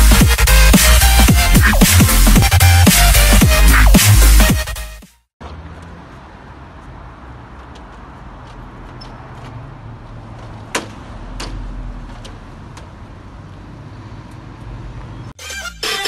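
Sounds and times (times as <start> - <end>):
low rumble of road traffic: 5.4 - 15.4.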